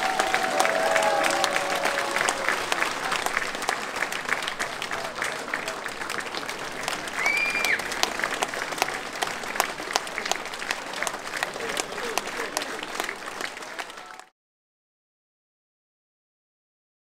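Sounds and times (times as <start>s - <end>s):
audience applauding: 0.0s - 14.3s.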